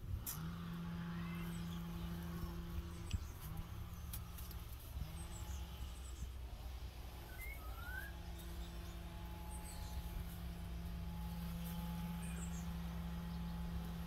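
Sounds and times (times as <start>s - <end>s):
steady low hum: 0.0s - 14.0s
rising bird chirp: 0.8s - 4.4s, 7.2s - 13.8s.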